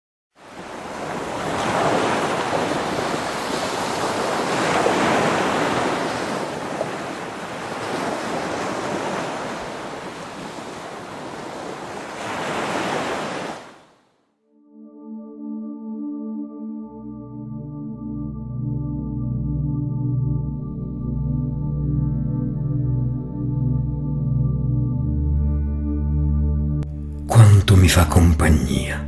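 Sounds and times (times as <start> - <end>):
sea surf washing onto beach: 0.4 - 13.9.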